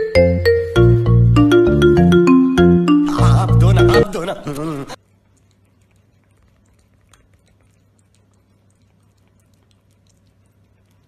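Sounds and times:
faint low hum: 3.2 - 11.0
cat chewing and lapping food: 5.0 - 11.0.

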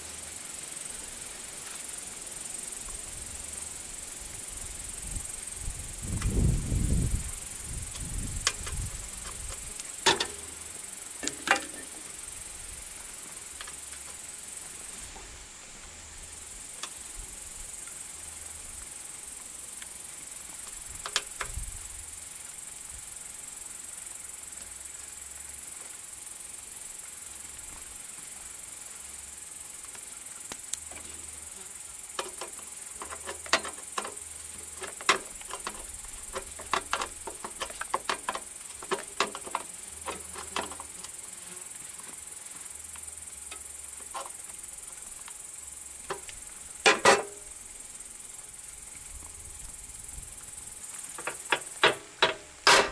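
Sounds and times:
steady high hiss: 0.0 - 52.9
tool clicks and taps on engine: 7.9 - 10.6, 20.6 - 21.6, 32.1 - 41.2, 51.1 - 52.9.

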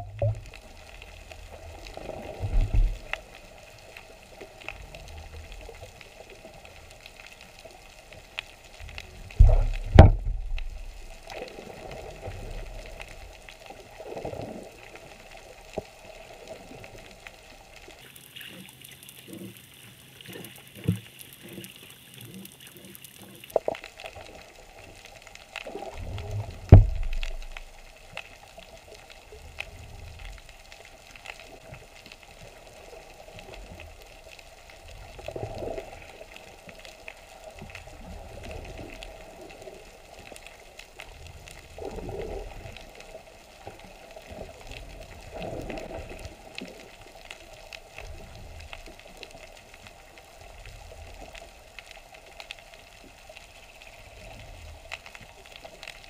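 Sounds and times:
water sloshing against hull: 0.0 - 56.0.

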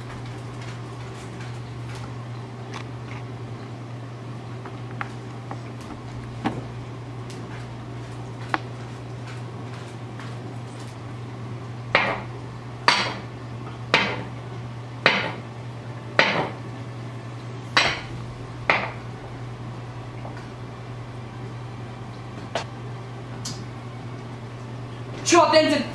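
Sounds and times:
low hum: 0.0 - 15.0, 15.6 - 25.9
knife chopping on wooden board: 12.0 - 12.3, 12.9 - 13.2, 13.9 - 14.3, 15.1 - 15.4, 16.2 - 16.6, 18.7 - 19.0.

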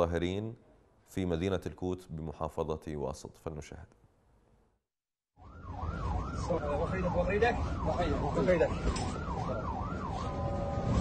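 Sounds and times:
emergency siren wailing: 5.4 - 11.0
street noise rumble: 5.4 - 11.0.

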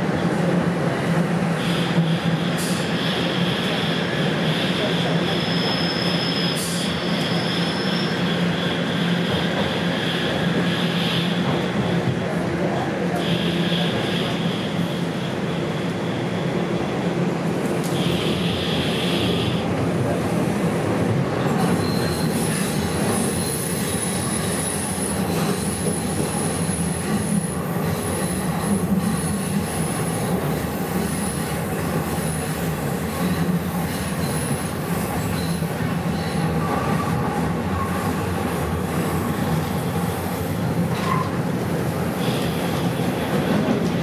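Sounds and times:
train wheels rumbling on rails: 0.0 - 44.0
high-pitched wheel squeal: 5.2 - 8.4, 21.6 - 24.8.

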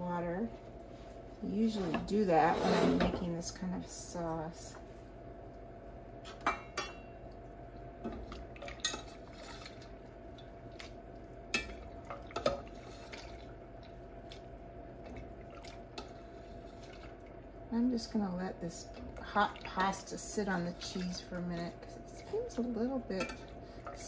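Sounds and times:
faint steady hum: 0.0 - 24.0
metal spatula clinking on pans: 6.4 - 7.0
pasta water dripping: 6.8 - 17.7, 18.6 - 24.0.

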